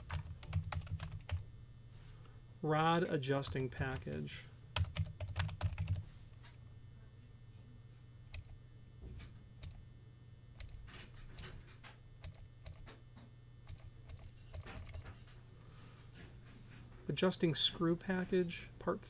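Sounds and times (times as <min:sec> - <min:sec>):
typing on computer keyboard: 0:00.0 - 0:01.4, 0:03.5 - 0:04.2, 0:04.8 - 0:06.0, 0:10.6 - 0:11.6, 0:12.2 - 0:13.0, 0:13.6 - 0:15.2
low steady hum: 0:00.0 - 0:19.0.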